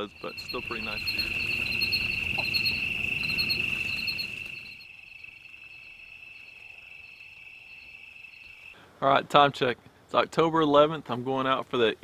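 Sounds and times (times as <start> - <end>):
insect chirping in pulsed groups: 0.0 - 8.8
insect trilling: 0.0 - 8.8.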